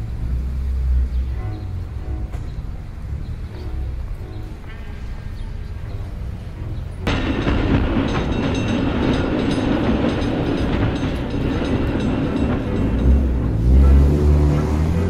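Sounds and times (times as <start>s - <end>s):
low rumble: 0.0s - 15.0s
tram rolling on rails: 0.0s - 15.0s.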